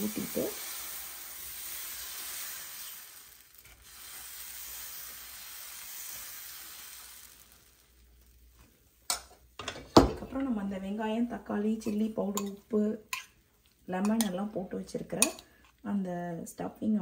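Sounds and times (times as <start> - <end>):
batter sizzling on griddle: 0.0 - 9.6.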